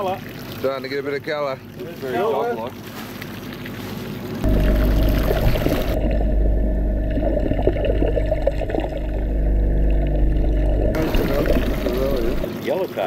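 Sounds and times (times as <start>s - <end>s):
muffled underwater water rush: 1.7s - 13.0s
wavering tones: 4.4s - 12.6s.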